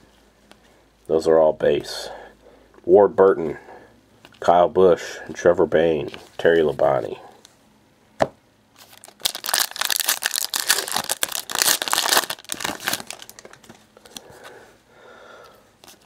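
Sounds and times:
foil wrapper tearing: 8.8 - 13.6
foil wrapper crinkling: 8.8 - 14.2.

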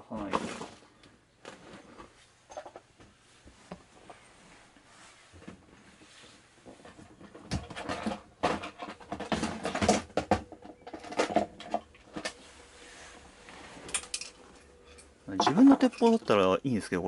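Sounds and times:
hard items rattling: 6.7 - 12.4, 13.8 - 16.4.

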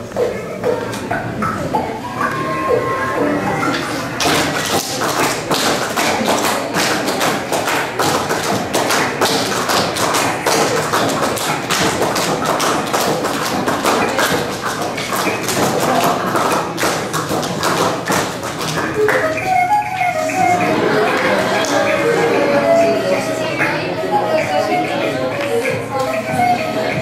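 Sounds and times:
faint music: 0.0 - 27.0
rapid handclaps: 4.2 - 22.4.

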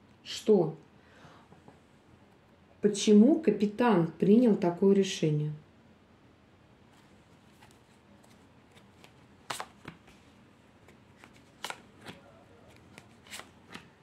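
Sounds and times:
cards snapping on table: 11.2 - 13.9.

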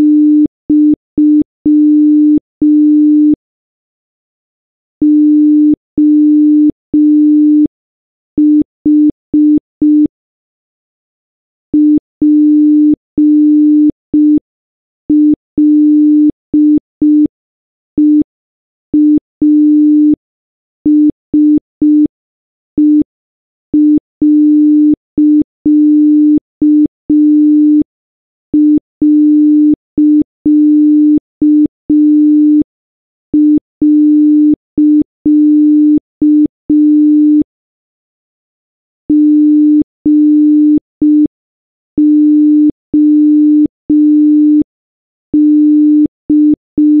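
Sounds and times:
morse code beeps: 42.0 - 44.7, 45.4 - 47.0.

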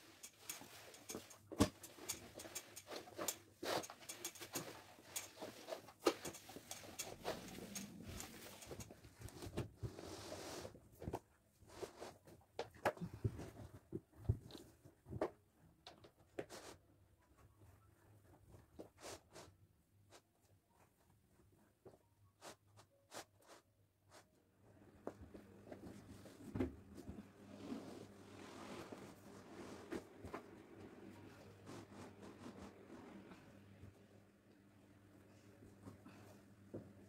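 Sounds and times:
rug rustling: 0.0 - 10.8, 25.6 - 33.6.

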